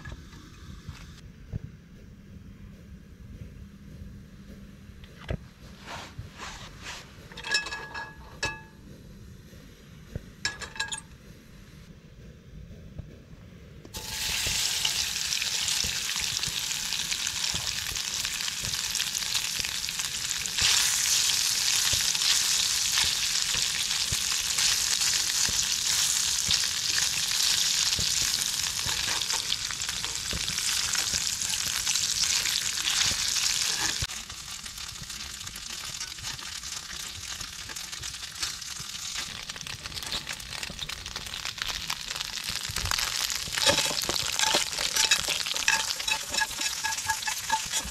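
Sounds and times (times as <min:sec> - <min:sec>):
tofu sizzling in hot oil: 0:14.0 - 0:47.9.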